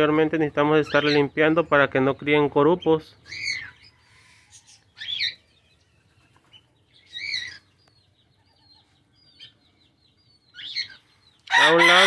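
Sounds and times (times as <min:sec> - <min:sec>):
bird calls rising and falling: 0:03.0 - 0:12.0.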